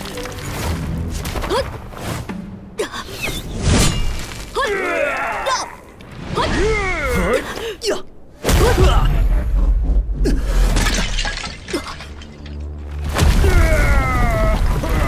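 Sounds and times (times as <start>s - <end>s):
background music: 0.0s - 5.6s, 10.0s - 15.0s.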